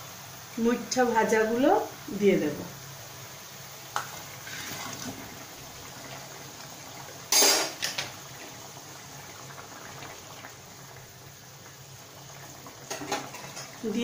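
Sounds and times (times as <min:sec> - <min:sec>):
curry bubbling: 0:01.4 - 0:14.0
metal utensil clanking on pan: 0:07.3 - 0:08.0.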